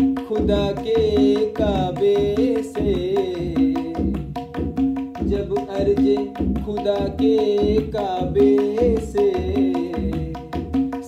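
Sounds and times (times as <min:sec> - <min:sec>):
man singing: 0:00.0 - 0:11.0
tabla playing: 0:00.0 - 0:11.0.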